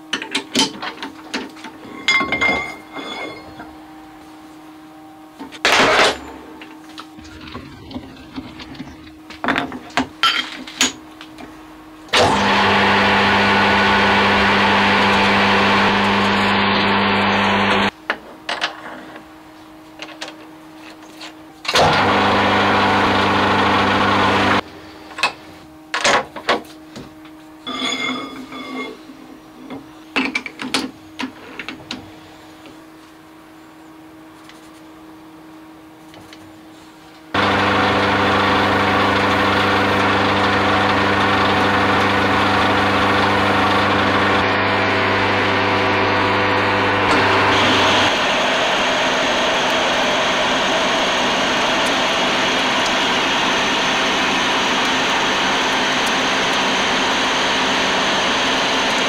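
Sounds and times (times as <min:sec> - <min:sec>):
lathe running: 0:12.1 - 0:17.9, 0:21.7 - 0:24.6, 0:37.4 - 0:59.0.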